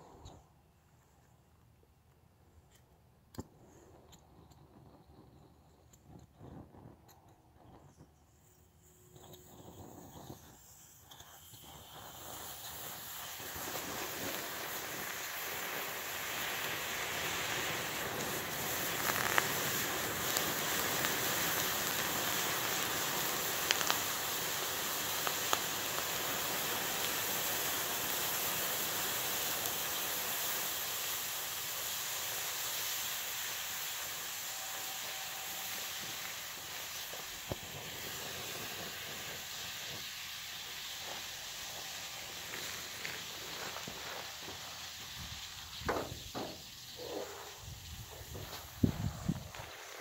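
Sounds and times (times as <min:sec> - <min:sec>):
powder burning with a hiss: 0:00.0 - 0:01.5, 0:02.6 - 0:50.0
sharp pops: 0:09.2 - 0:30.9, 0:35.6 - 0:50.0.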